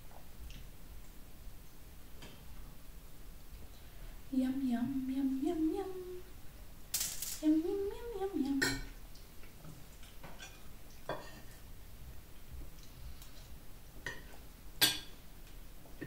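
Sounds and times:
woman's voice: 0:04.3 - 0:06.3, 0:07.4 - 0:08.8
cutlery clinking on plates: 0:10.2 - 0:11.6, 0:14.1 - 0:15.2.

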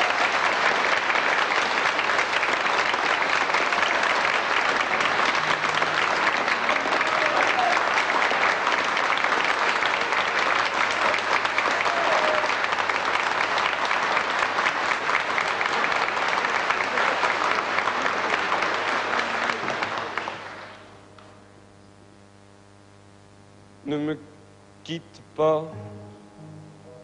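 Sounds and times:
audience applauding: 0:00.0 - 0:21.0
faint mains hum: 0:00.0 - 0:27.0.

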